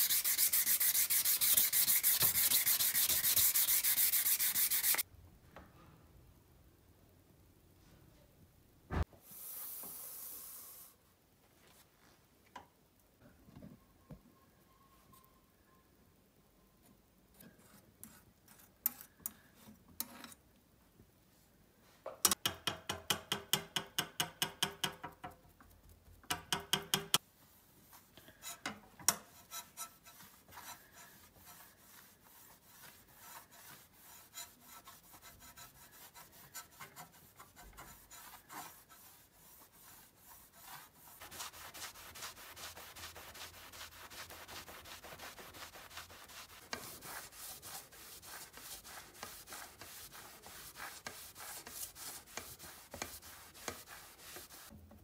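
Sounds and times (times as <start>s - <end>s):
cloth scrubbing steel blade: 0.0s - 5.0s.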